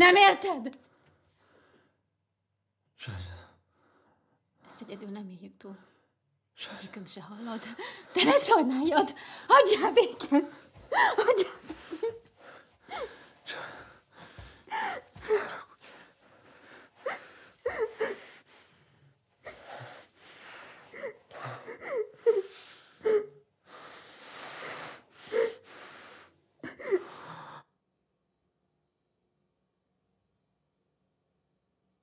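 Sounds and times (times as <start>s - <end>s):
person sobbing: 10.2s - 12.2s, 17.0s - 18.3s, 21.0s - 23.3s, 26.6s - 27.2s
gasping breaths: 10.6s - 27.7s.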